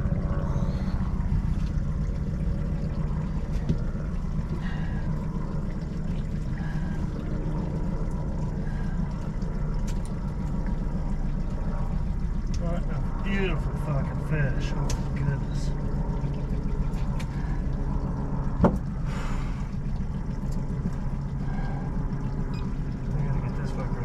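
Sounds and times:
outboard motor idling: 0.0s - 24.0s.

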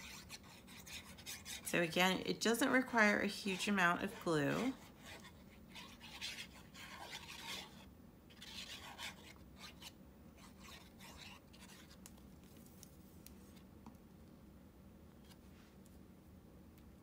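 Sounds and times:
paper handling with light ticks: 12.0s - 13.7s.

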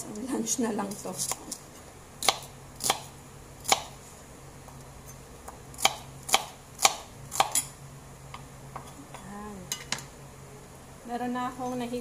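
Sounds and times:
knife chopping on cutting board: 2.2s - 4.0s, 5.8s - 7.6s.

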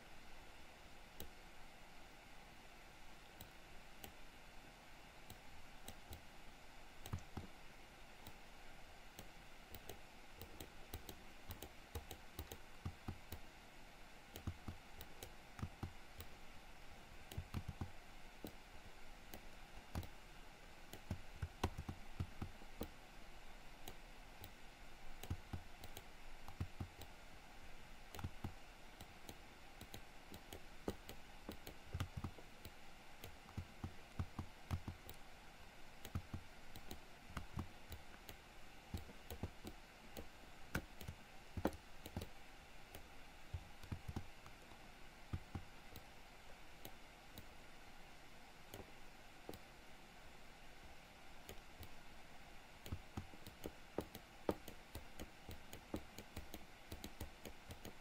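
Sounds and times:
faint background hum: 0.0s - 58.0s
mouse and keyboard clicking: 5.3s - 6.3s, 7.0s - 7.5s, 9.1s - 13.5s, 14.3s - 16.4s, 17.2s - 18.6s, 19.3s - 20.2s, 20.9s - 23.0s, 25.2s - 27.2s, 28.1s - 35.2s, 36.0s - 46.1s, 48.7s - 49.7s, 51.4s - 52.0s, 52.8s - 58.0s.

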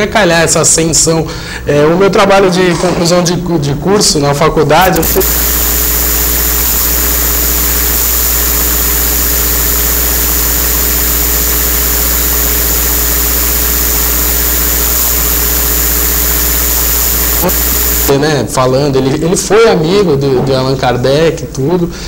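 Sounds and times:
electrical hum and hiss: 4.6s - 20.0s.

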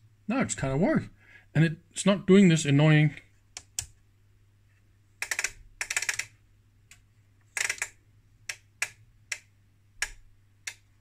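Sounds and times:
power supply relays clicking: 5.2s - 11.0s.

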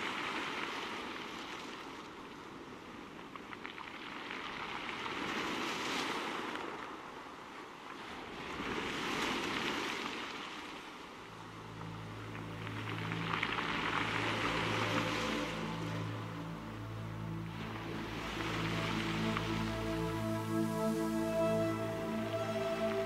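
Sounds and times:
rushing underwater water: 0.0s - 23.0s
low steady hum: 11.2s - 23.0s.

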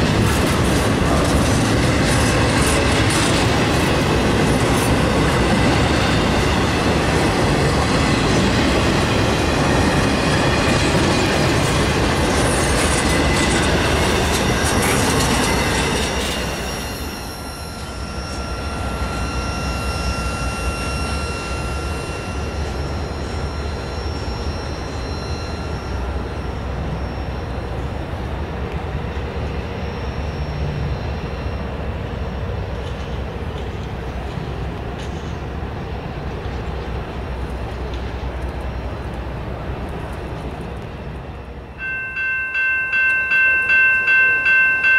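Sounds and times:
freight cars rumbling and clacking: 0.0s - 44.9s
thin wheel squeal: 12.9s - 28.1s.

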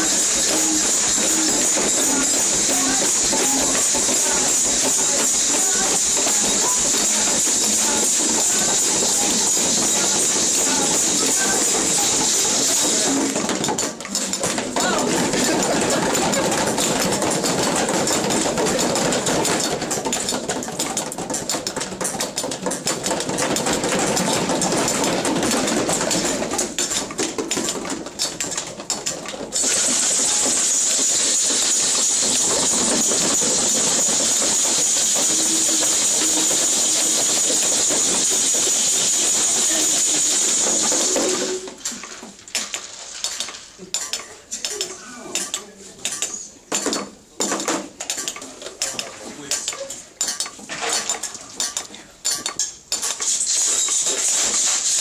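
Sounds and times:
loud shaker hiss: 0.0s - 13.5s, 29.6s - 41.7s, 53.2s - 55.0s
shakers rattling: 0.0s - 44.8s, 46.1s - 55.0s.

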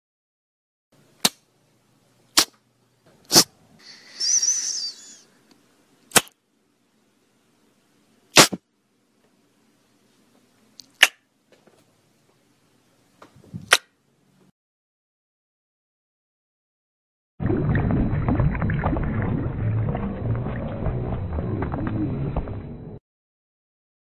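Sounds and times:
wavering high-pitched squeal: 4.0s - 5.2s
loud sharp cracks: 6.1s - 6.4s.

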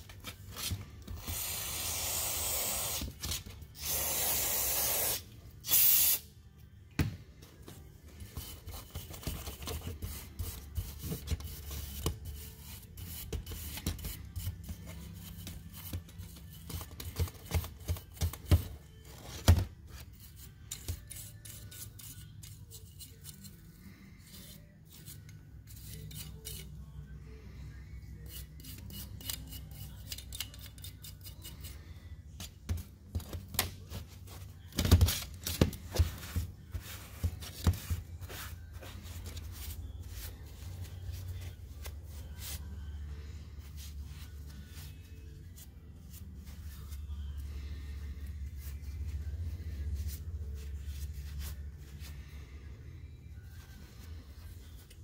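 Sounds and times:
hand tool scraping metal: 20.0s - 27.0s, 28.2s - 31.8s.

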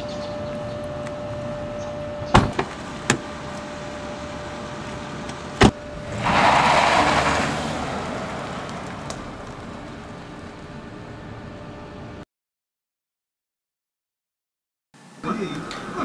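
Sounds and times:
car pulling away: 0.0s - 12.2s
car doors slamming: 2.2s - 3.4s, 5.6s - 5.8s.

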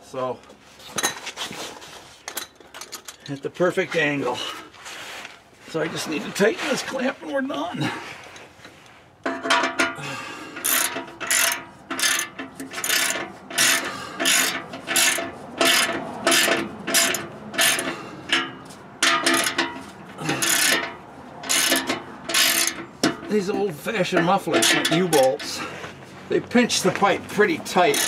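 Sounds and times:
socket ratchet clicking: 10.6s - 19.7s, 21.5s - 22.8s.

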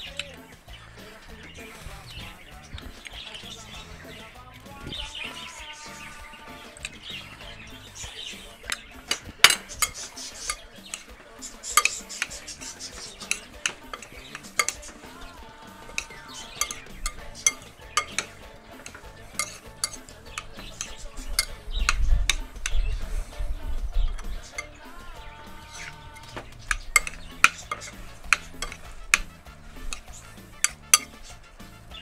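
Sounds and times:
spoon scraping and clinking glass bowl: 5.3s - 22.8s, 24.1s - 24.8s, 25.7s - 31.4s.

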